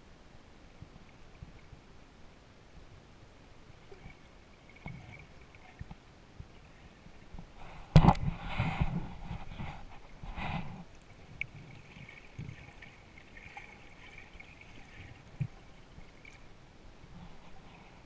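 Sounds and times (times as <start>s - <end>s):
faint steady hiss: 0.0s - 18.0s
muffled underwater sloshing: 3.6s - 18.0s.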